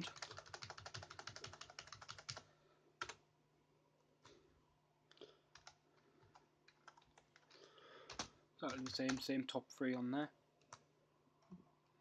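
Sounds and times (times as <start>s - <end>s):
computer keyboard key presses: 0.0s - 2.4s.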